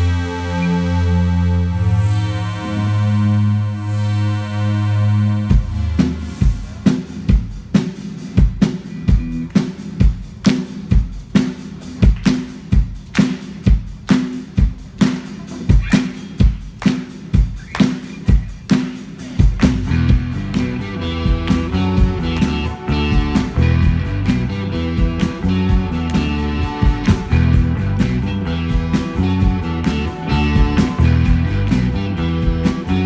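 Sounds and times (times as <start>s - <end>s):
bass guitar: 0.0s - 13.8s, 14.6s - 33.0s
drum kit beat: 5.4s - 33.0s
electric guitar: 8.5s - 9.8s, 19.5s - 33.0s.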